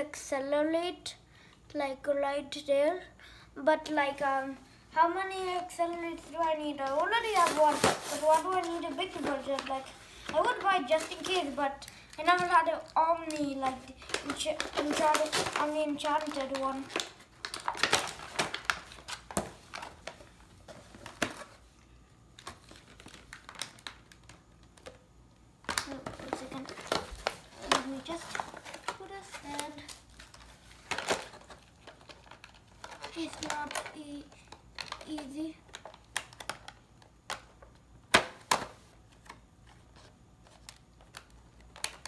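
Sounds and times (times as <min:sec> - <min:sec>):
toy packaging crinkling and tearing: 0:05.8 - 0:21.6, 0:22.2 - 0:25.0, 0:25.6 - 0:39.8, 0:40.4 - 0:42.0
sharp plastic snaps: 0:25.6 - 0:39.4, 0:40.6 - 0:42.0.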